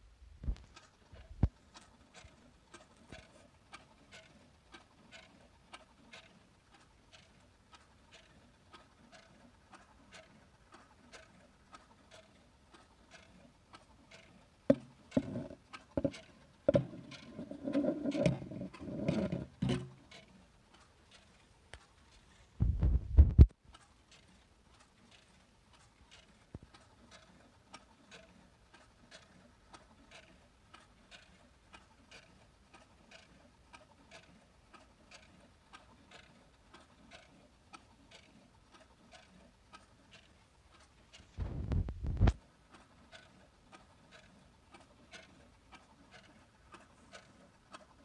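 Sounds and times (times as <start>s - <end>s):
clock ticking faintly: 0.4s - 22.4s, 23.2s - 48.0s
knocks and rustling: 14.7s - 20.0s
short low thump: 41.4s - 42.4s.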